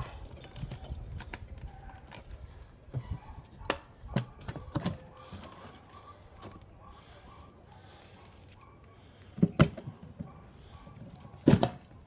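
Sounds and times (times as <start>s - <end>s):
key rattle: 0.0s - 2.4s.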